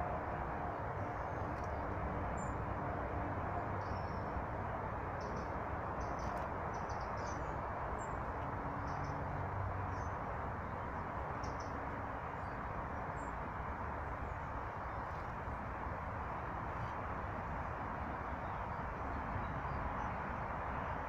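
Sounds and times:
low rushing background noise: 0.0 - 21.0
songbirds chirping: 3.6 - 15.7.

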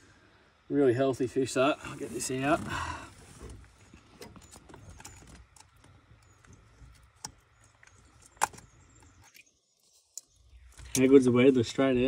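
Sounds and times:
fishing gear clicking and rattling: 3.4 - 9.5.

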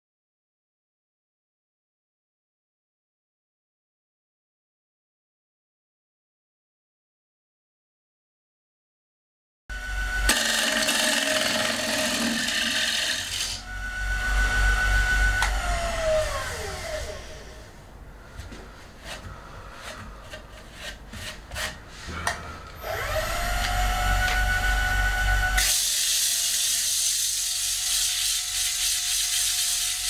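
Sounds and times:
lathe motor whine: 9.7 - 17.8, 22.8 - 26.0
gouge scraping spinning wood: 10.3 - 14.7, 19.0 - 25.6.

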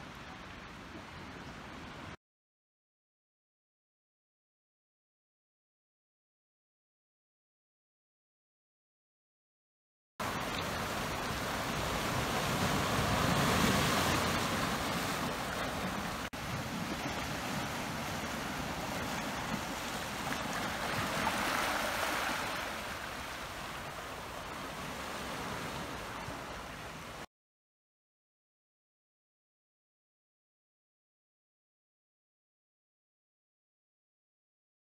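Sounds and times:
waves washing over rocks and pebbles: 10.2 - 27.2.

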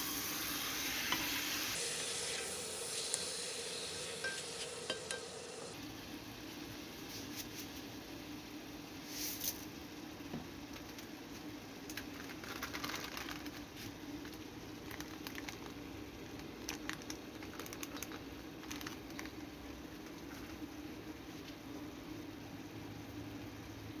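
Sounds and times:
food crackling and popping in pot: 0.0 - 5.8, 10.4 - 20.8
steady low hum: 0.0 - 5.8.

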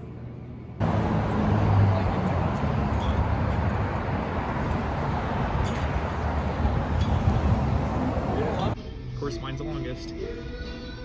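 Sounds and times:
low engine hum: 0.0 - 8.8
traffic rushing hiss: 0.8 - 8.8.

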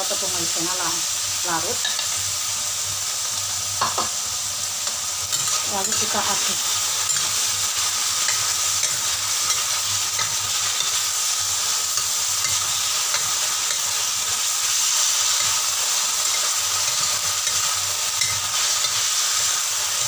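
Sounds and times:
food sizzling in a wok: 0.0 - 20.0
spatula scraping metal wok: 4.8 - 20.0.

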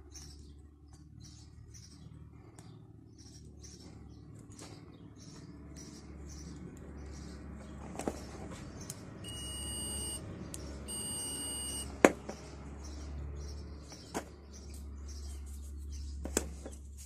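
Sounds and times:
multimeter continuity beeps: 9.2 - 10.2, 10.8 - 11.9.

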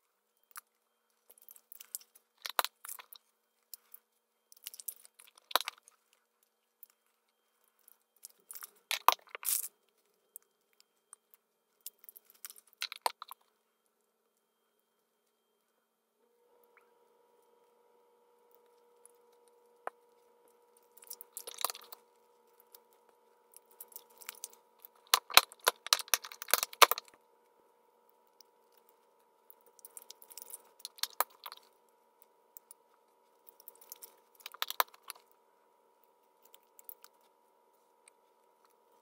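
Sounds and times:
foil wrappers crinkling: 23.7 - 27.2.

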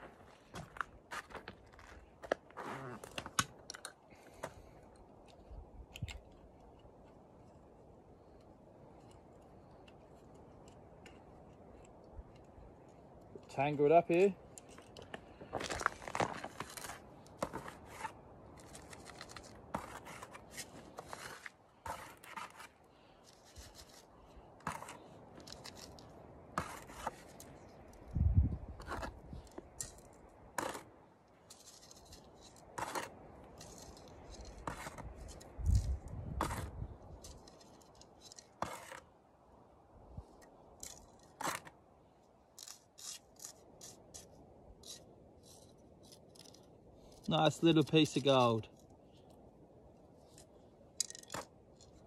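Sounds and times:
hands scraping gravelly soil: 13.5 - 28.2, 28.8 - 39.1, 42.5 - 48.9.

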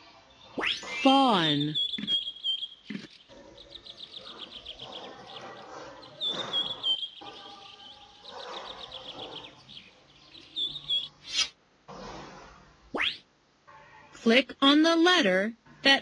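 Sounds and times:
small birds chirping and trilling: 0.0 - 11.5
short swish: 11.2 - 12.3.

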